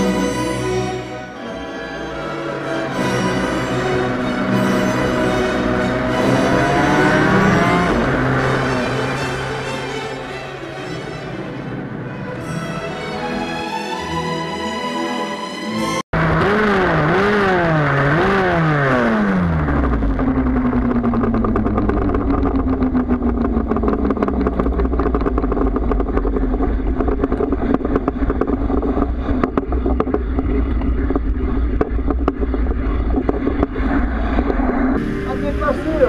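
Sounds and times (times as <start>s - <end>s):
motorcycle engine revving: 2.9s - 10.3s, 16.2s - 36.0s
engine rattling clatter: 16.2s - 36.0s.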